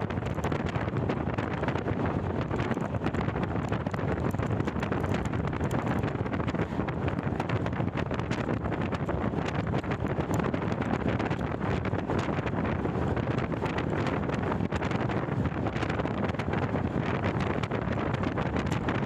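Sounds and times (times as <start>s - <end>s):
wind buffeting a microphone: 0.0s - 19.0s.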